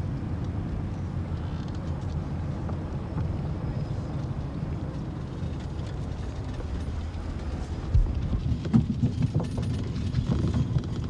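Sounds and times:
steady low rumble: 0:00.0 - 0:11.0
wooden hutch knocks and rattles: 0:08.0 - 0:11.0.

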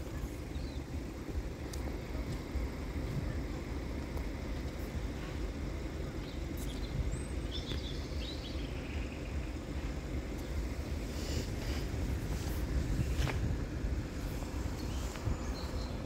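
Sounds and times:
low outdoor rumble: 0:00.0 - 0:16.0.

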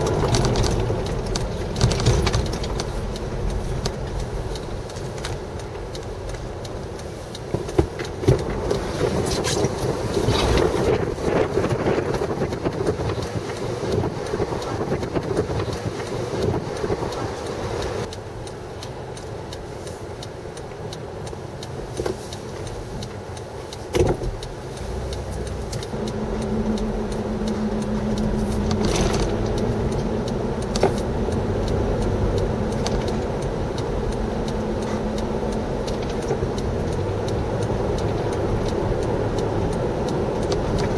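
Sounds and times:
car engine and road noise: 0:00.0 - 0:40.9
steady hum: 0:22.4 - 0:40.9.

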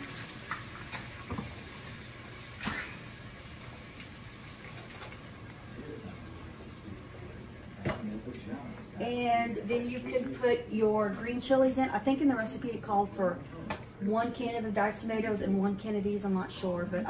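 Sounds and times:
wet pouring into a pot: 0:00.0 - 0:07.6.

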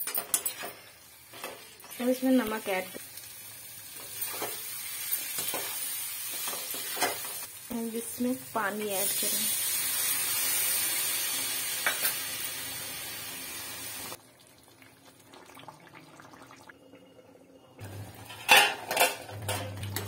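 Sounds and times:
water sizzling in hot oil: 0:00.0 - 0:14.2.

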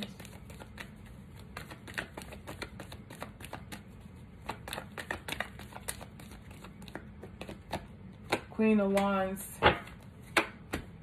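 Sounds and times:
cards being shuffled: 0:00.0 - 0:08.5.

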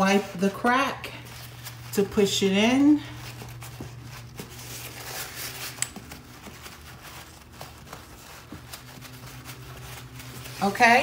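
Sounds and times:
paper towel rustling: 0:00.0 - 0:11.0.

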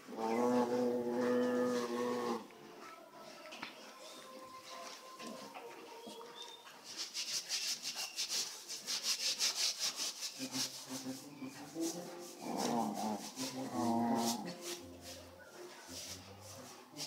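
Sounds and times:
low animal groan: 0:00.1 - 0:02.5, 0:12.4 - 0:14.6
fur and paws scuffling: 0:10.0 - 0:17.0.

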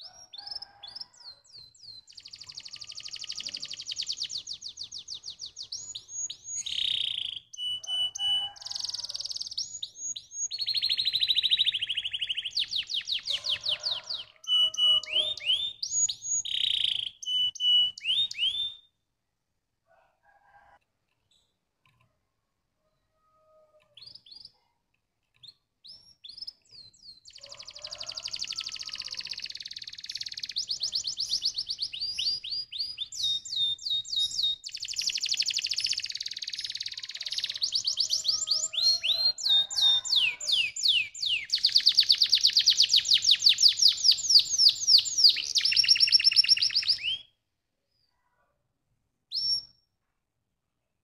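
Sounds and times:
canary singing trills: 0:00.0 - 0:18.9, 0:25.3 - 0:47.3.

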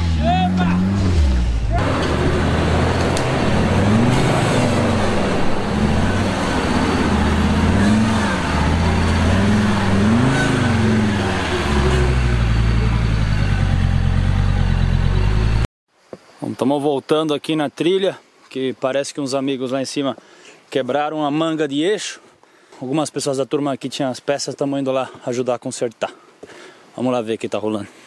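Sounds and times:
engine revving under load: 0:00.0 - 0:15.7.

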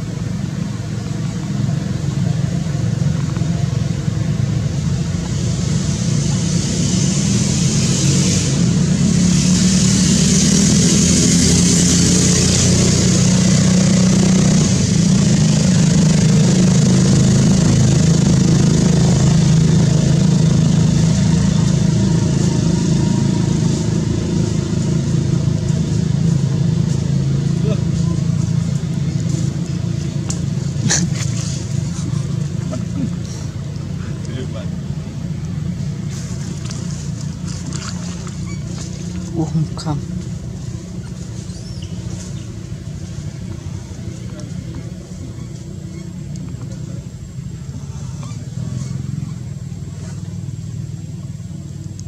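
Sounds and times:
low engine drone: 0:00.0 - 0:52.0
high hiss: 0:04.6 - 0:12.8.

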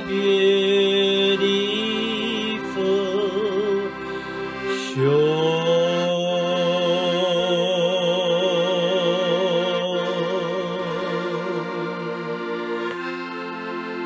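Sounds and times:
man singing with vibrato: 0:00.0 - 0:13.2
accordion chords: 0:00.0 - 0:14.0.

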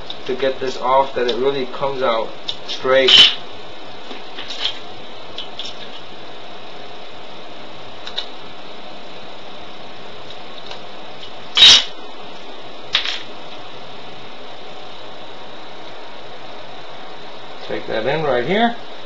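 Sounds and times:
steady background hiss: 0:00.0 - 0:19.0
sharp crack: 0:02.5 - 0:03.4, 0:11.6 - 0:12.0.

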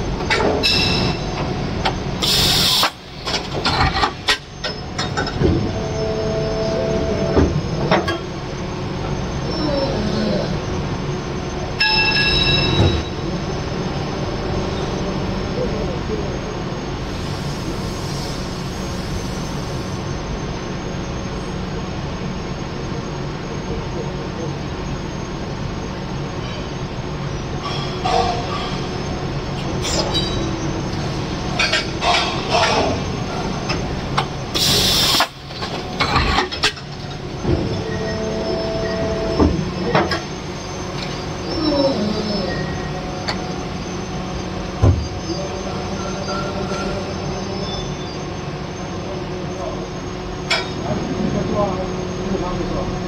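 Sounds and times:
injection moulding machine drone: 0:00.0 - 0:53.0
hiss: 0:02.2 - 0:03.0, 0:17.1 - 0:20.1, 0:34.5 - 0:35.4
loud hiss: 0:02.2 - 0:03.0, 0:34.5 - 0:35.4.

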